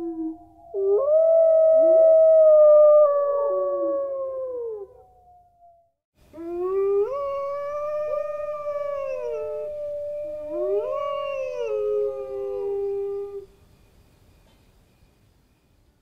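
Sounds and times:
wolves howling: 6.4 - 13.4.

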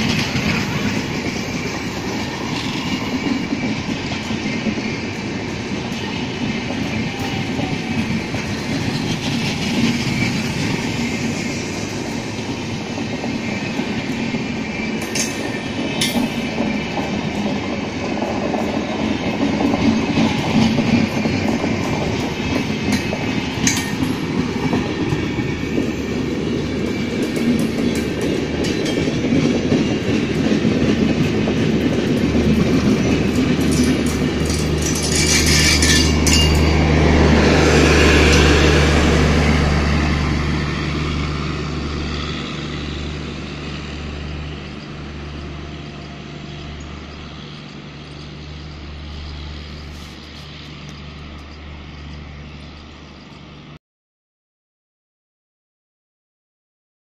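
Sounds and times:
train wheels clattering over rail joints: 0.0 - 39.6.

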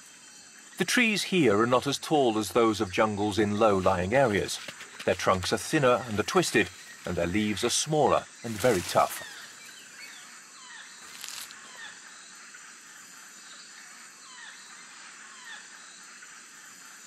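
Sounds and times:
insects hissing: 0.0 - 17.0
animals chirping: 0.8 - 12.1
foliage rustling: 1.7 - 10.1, 11.0 - 11.6.

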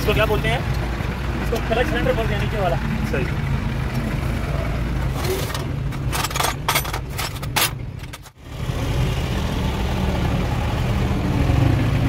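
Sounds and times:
truck engine idling: 0.0 - 7.2
sharp metallic clicks and scrapes: 5.0 - 8.4.

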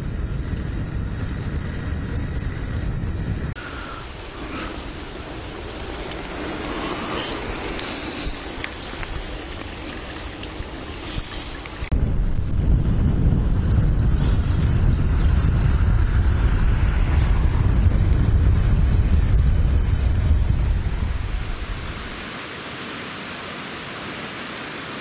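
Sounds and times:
wind buffeting microphone: 0.0 - 22.2
rushing water of a stream: 3.6 - 11.9, 21.2 - 25.0.

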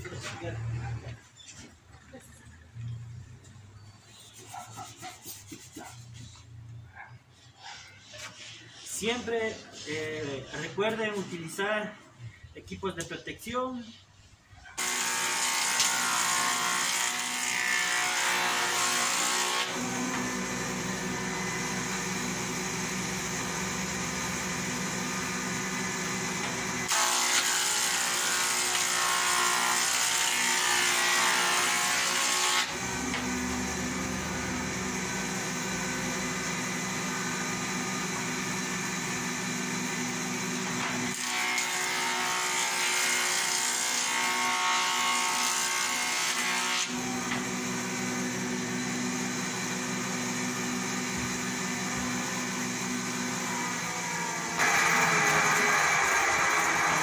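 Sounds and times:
thickness planer running: 14.8 - 57.0.

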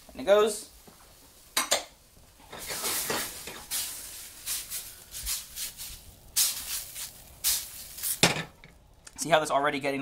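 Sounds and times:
mushrooms sizzling in a pan: 0.0 - 9.6.

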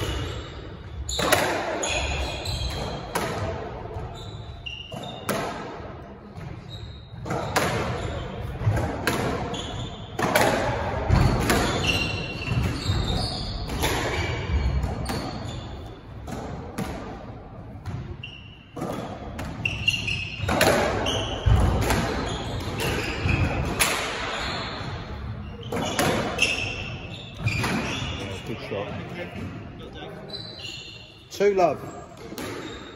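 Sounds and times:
squash ball hits echoing: 0.0 - 28.2, 32.1 - 32.9
shoes squeaking on wooden floor: 4.0 - 5.3, 11.1 - 16.0, 19.6 - 32.9.

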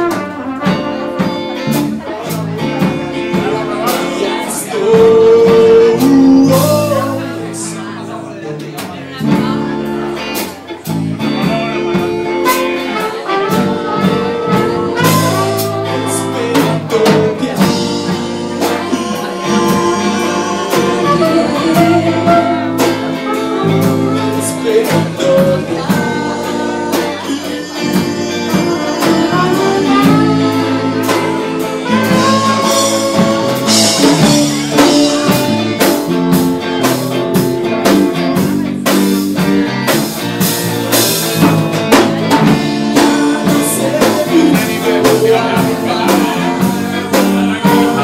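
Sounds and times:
trumpet melody: 0.0 - 2.0, 11.5 - 38.5
bass guitar: 0.0 - 48.0
drums: 0.0 - 48.0
electric guitar: 0.0 - 48.0
man singing: 0.0 - 48.0.

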